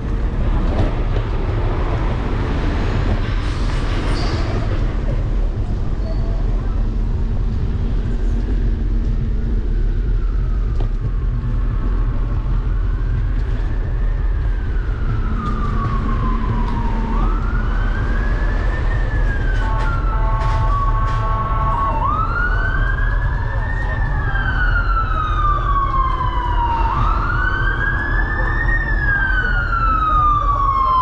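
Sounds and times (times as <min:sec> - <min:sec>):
wind and road rumble: 0:00.0 - 0:31.0
emergency siren wailing: 0:06.2 - 0:31.0.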